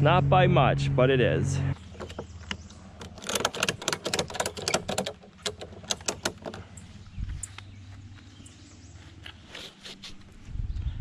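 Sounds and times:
ratchet strap buckle clicking: 2.4 - 6.6.

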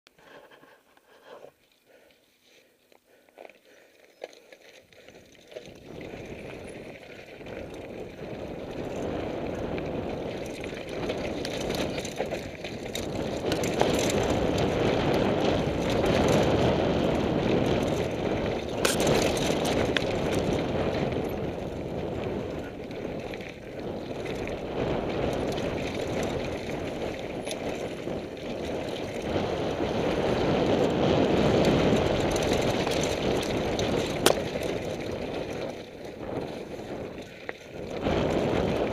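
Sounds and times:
tyres rolling over gravel: 4.1 - 38.9
wind on microphone: 5.6 - 38.9
bike clattering over rocks: 18.7 - 20.6, 32.0 - 35.5.

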